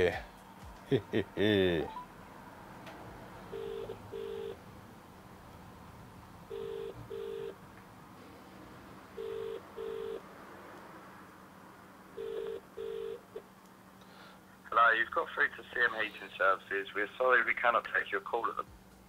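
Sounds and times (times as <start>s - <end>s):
phone ringing tone double beeps: 3.5s - 4.6s, 6.5s - 7.6s, 9.2s - 10.2s, 12.2s - 13.2s.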